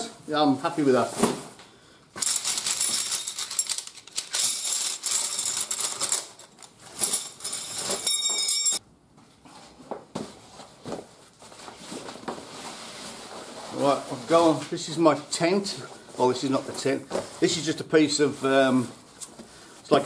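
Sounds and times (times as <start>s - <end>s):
metal poles clattering: 2.2s - 8.8s.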